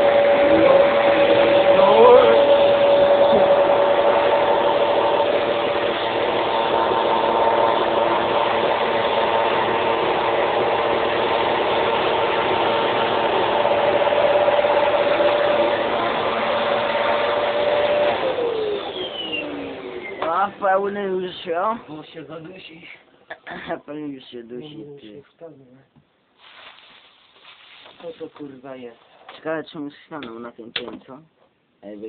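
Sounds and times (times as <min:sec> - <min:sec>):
vacuum motor winding down: 0:00.0 - 0:21.6
vacuum cleaner running: 0:00.0 - 0:22.0.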